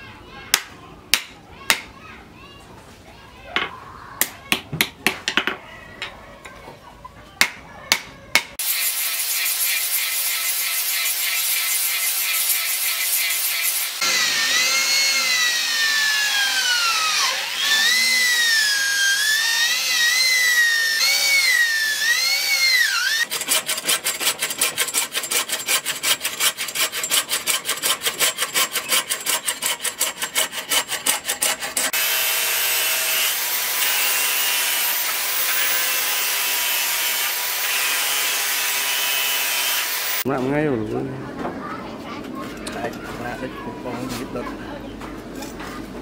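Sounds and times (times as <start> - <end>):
electric drill boring into wood: 8.6 - 23.3, 31.9 - 40.2
hacksaw strokes: 8.6 - 40.2
angle grinder sanding wood: 8.6 - 40.3.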